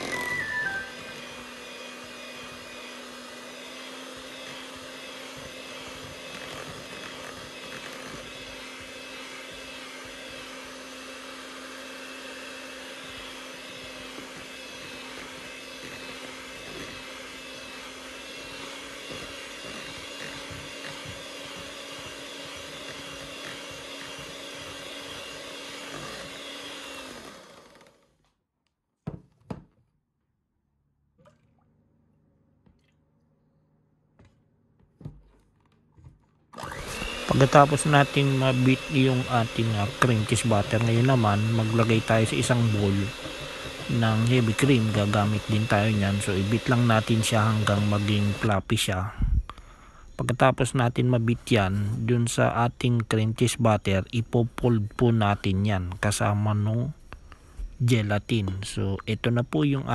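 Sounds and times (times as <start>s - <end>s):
electric hand mixer running: 0.0s - 28.2s, 36.6s - 48.7s.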